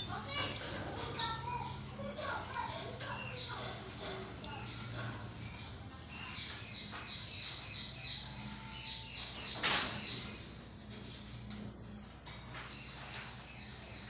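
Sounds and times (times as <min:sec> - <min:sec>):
parakeets chirping: 0:00.0 - 0:10.5.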